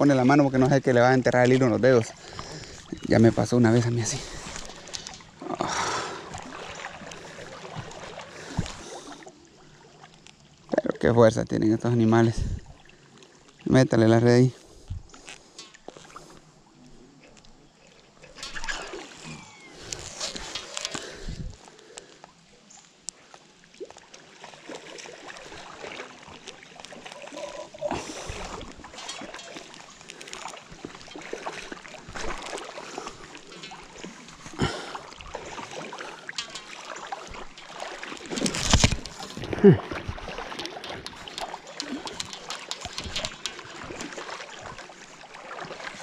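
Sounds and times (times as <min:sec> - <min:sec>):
river water splashing: 0:00.0 - 0:46.0
small clicks and knocks: 0:36.3 - 0:39.5, 0:40.6 - 0:44.1.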